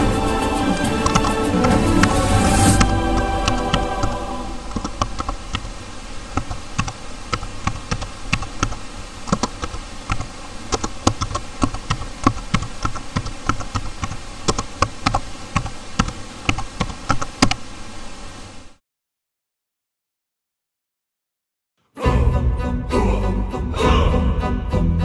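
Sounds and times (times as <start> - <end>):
computer keyboard typing: 0.0 - 2.2, 6.4 - 17.3.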